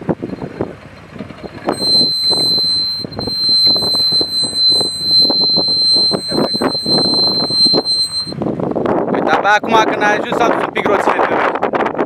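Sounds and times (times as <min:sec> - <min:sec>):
high-pitched alarm-like tone: 0:01.7 - 0:08.4.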